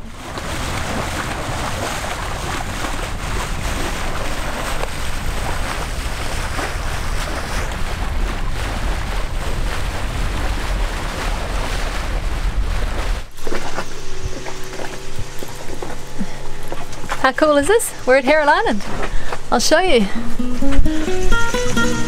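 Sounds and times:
wind buffeting microphone: 0.0 - 21.9
bow wave rushing along hull: 0.0 - 22.0.

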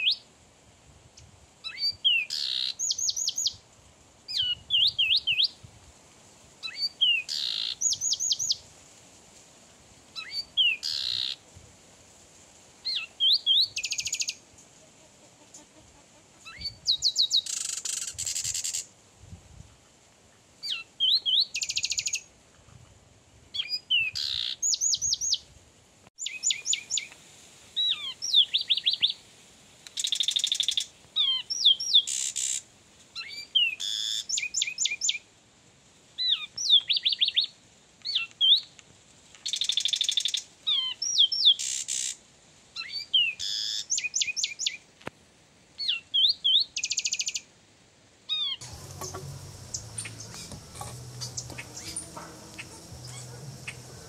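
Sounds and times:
wren whistled song: 4.3 - 5.6, 6.6 - 8.6, 12.9 - 14.4, 16.5 - 18.8, 20.6 - 22.2, 26.2 - 27.1, 33.2 - 35.2, 45.8 - 47.4, 48.4 - 54.0
wren buzzy rattles: 48.6 - 54.0.

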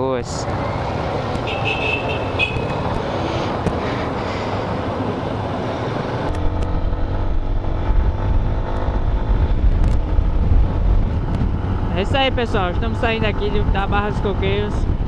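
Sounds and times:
other motorcycles: 0.0 - 15.0
wind noise on microphone: 6.2 - 15.0.

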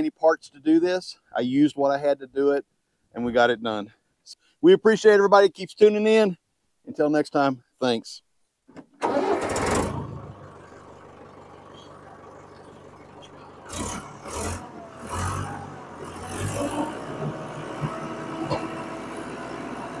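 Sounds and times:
tractor diesel engine revving: 9.0 - 20.0.

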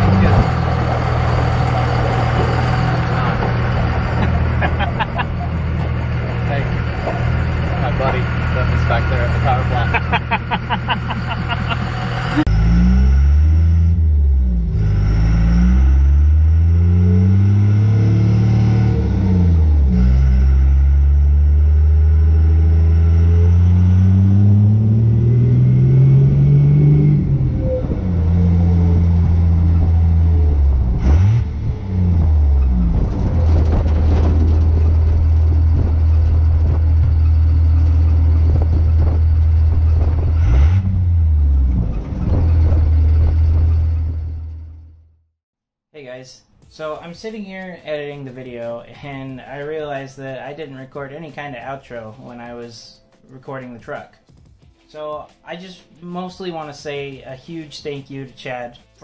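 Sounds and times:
diesel truck engine accelerating: 0.0 - 45.3.

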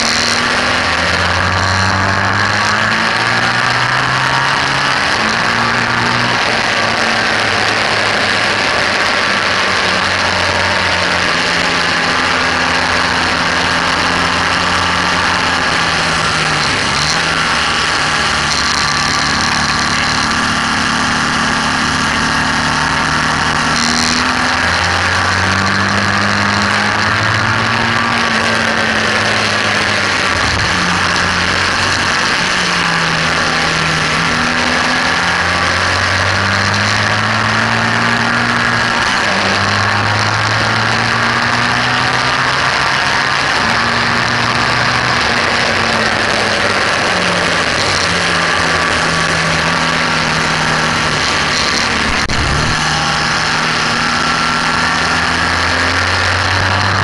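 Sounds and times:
motorcycle engine running hard: 0.0 - 57.0
wind rush: 50.0 - 55.1.

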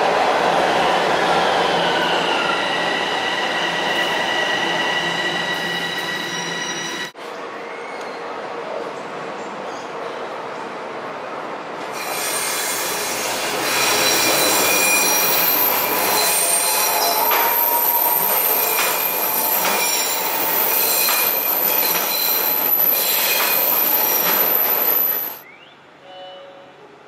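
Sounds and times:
train wheels squealing on rails: 0.9 - 8.4, 11.9 - 25.4
train rolling noise: 11.7 - 25.4.

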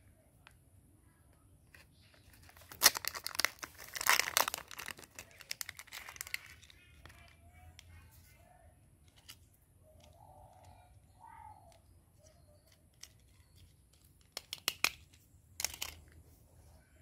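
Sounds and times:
crinkling: 1.6 - 8.4, 11.7 - 16.3
plastic toy clicks and taps: 12.6 - 16.1.

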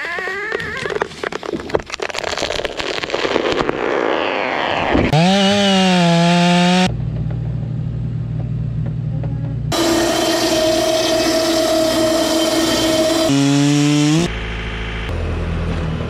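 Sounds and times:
tree cracking and splintering: 0.6 - 6.4
chainsaw revving: 5.1 - 6.9, 9.7 - 14.3
excavator engine humming: 6.3 - 16.0.

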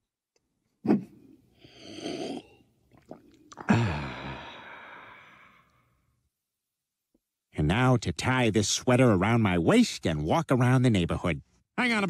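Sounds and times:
man breathing and sighing: 3.5 - 6.0.

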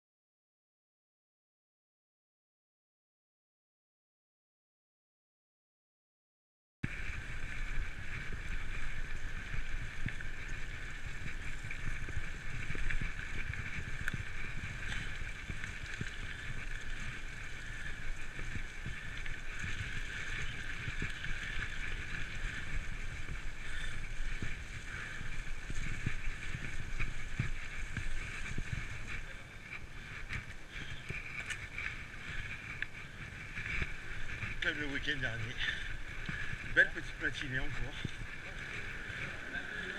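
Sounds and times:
tyres rolling over leaves and grass: 6.9 - 39.9.

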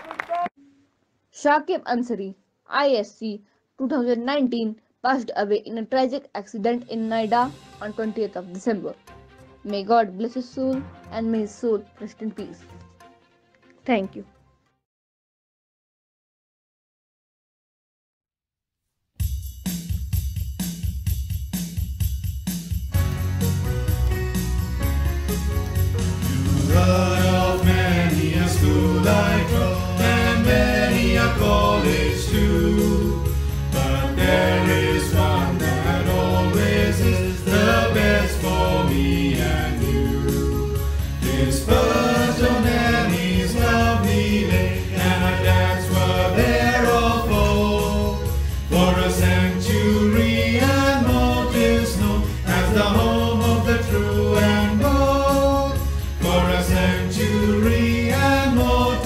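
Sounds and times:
instrumental backing with bass: 19.2 - 59.0
choir singing: 26.1 - 59.0.

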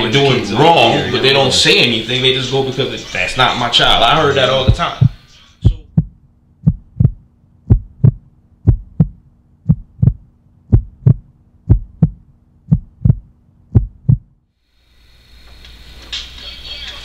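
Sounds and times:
faint steady hum: 0.0 - 17.0
heartbeat thumps: 3.9 - 14.4.

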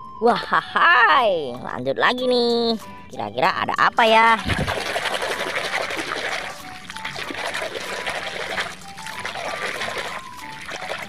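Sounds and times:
water sloshing and splashing: 4.3 - 11.0
simple high-toned melody: 6.6 - 11.0.

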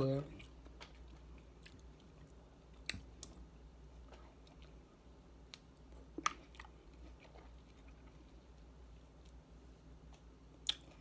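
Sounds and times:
person chewing: 0.3 - 11.0.

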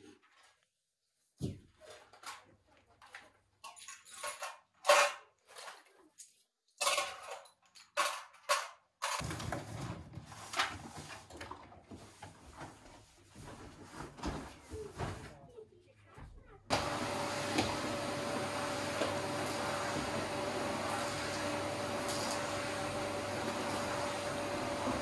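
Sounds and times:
dishes and cutlery clattering: 3.6 - 5.8, 6.8 - 9.2.

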